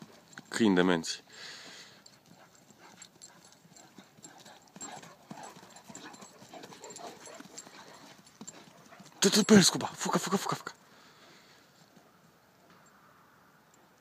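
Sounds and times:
dog paws galloping on grass: 2.1s - 10.5s.

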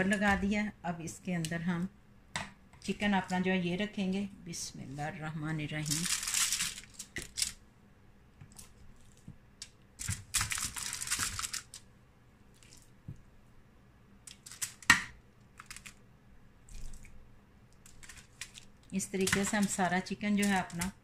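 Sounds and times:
aluminium foil crinkling: 5.7s - 7.6s, 10.0s - 11.8s, 14.3s - 14.9s, 15.5s - 16.0s, 17.8s - 21.0s.

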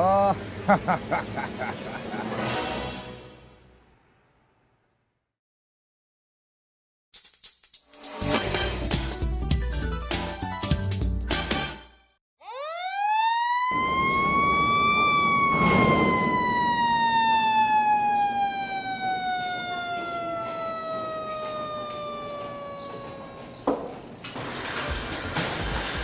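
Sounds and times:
factory siren winding: 12.4s - 25.4s.

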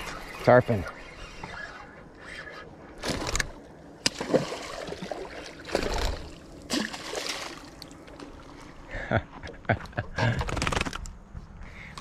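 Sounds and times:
fish splashing in water: 4.0s - 8.0s.

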